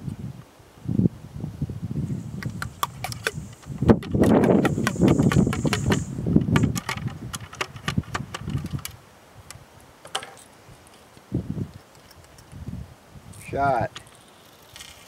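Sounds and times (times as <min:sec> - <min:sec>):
ramrod clicking and knocking in barrel: 0:02.4 - 0:09.0, 0:10.0 - 0:10.5, 0:11.7 - 0:12.6.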